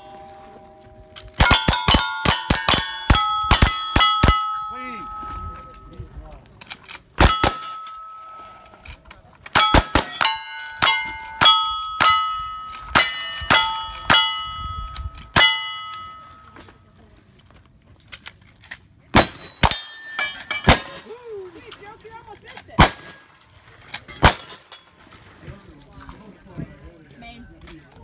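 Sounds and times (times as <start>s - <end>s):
steel plate ringing clang: 0.0s - 6.0s, 7.2s - 8.8s, 9.6s - 16.6s, 19.2s - 21.0s
gunshots: 1.4s - 4.4s, 7.2s - 7.8s, 9.6s - 10.4s, 19.2s - 19.9s, 22.8s - 23.2s, 24.2s - 24.7s.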